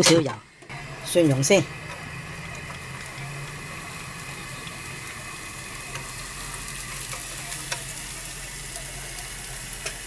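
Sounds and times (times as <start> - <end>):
garlic sizzling in oil: 0.7 - 10.0
chopsticks tapping pan: 6.9 - 8.0, 8.7 - 10.0.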